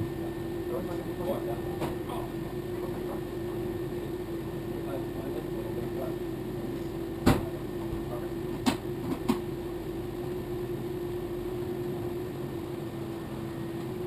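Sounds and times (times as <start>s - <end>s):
steady hum: 0.0s - 14.0s.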